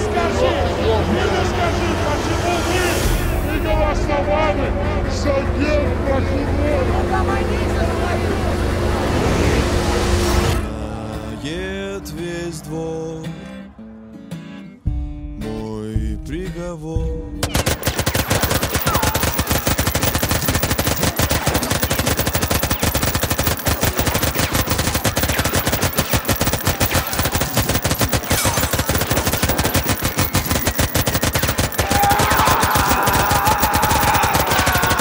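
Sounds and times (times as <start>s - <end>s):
automatic gunfire: 17.4s - 35.0s
man yelling: 31.8s - 35.0s.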